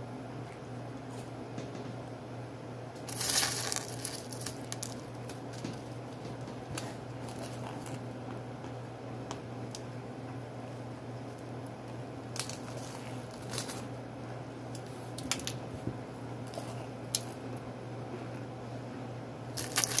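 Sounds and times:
steady low hum: 0:00.0 - 0:20.0
foil crinkles and clicks: 0:03.0 - 0:05.8, 0:06.8 - 0:08.0, 0:12.3 - 0:13.9, 0:14.8 - 0:15.6, 0:19.6 - 0:20.0
chunks crunching by hand: 0:03.0 - 0:08.0, 0:19.6 - 0:20.0.

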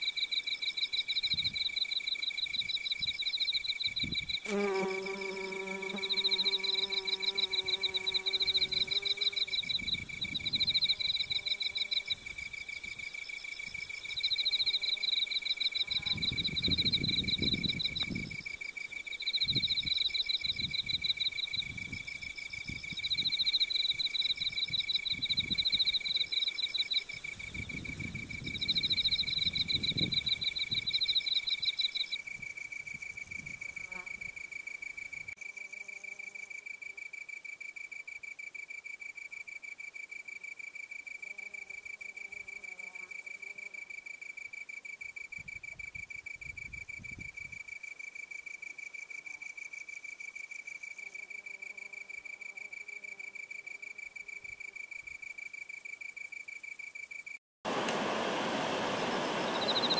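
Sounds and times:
insect fast-pulsed song: 0:00.0 - 0:35.6, 0:56.0 - 0:59.9
insect steady pulsed trill: 0:00.0 - 0:57.4, 0:58.1 - 0:59.9.

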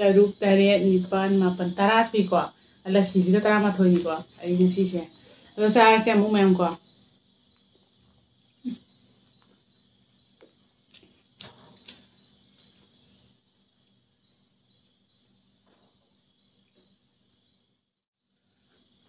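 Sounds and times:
steady high-pitched hum: 0:00.0 - 0:10.9.

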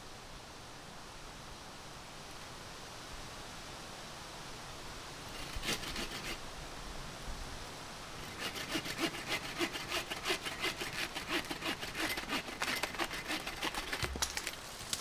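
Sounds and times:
hand saw cutting wood: 0:05.3 - 0:06.4, 0:08.2 - 0:14.6.

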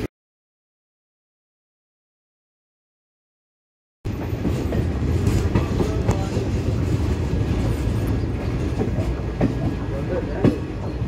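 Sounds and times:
train wheels rumbling on rails: 0:04.1 - 0:11.0.

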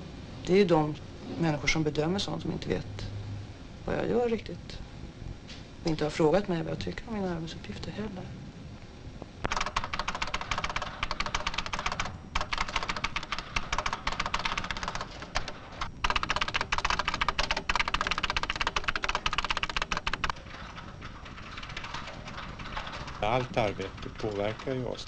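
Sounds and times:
fast keyboard typing: 0:09.5 - 0:25.0.

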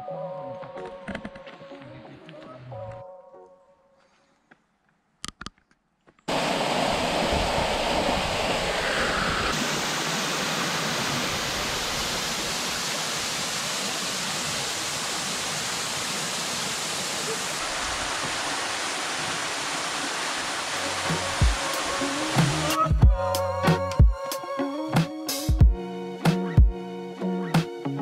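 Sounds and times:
waterfall rushing: 0:06.3 - 0:23.0.

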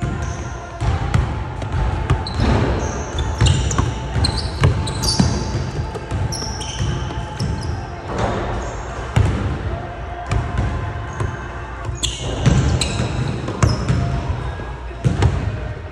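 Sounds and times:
sneaker squeaks: 0:00.0 - 0:00.7, 0:02.1 - 0:09.2, 0:11.1 - 0:14.6
basketball bouncing on hardwood: 0:03.4 - 0:07.6.

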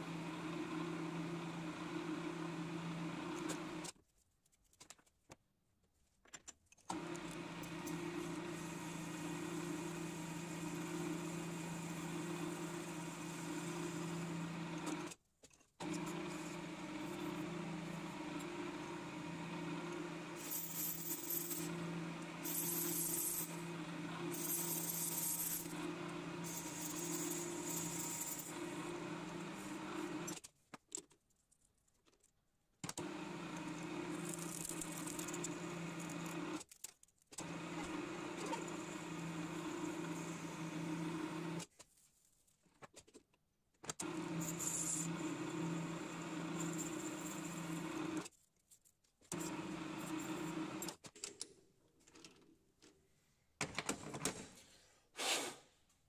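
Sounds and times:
metal lathe motor hum: 0:44.2 - 0:48.2.

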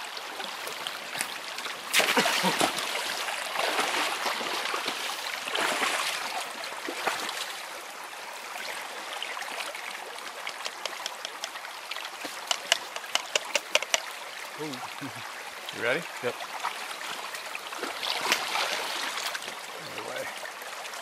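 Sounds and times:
water trickling and gurgling: 0:00.0 - 0:21.0
sharp ticks: 0:10.4 - 0:11.6, 0:12.4 - 0:14.1.

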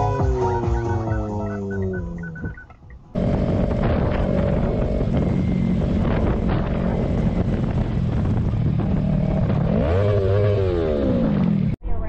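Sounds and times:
motorcycle engine running: 0:00.0 - 0:11.8
wind rushing over microphone: 0:03.2 - 0:11.8.

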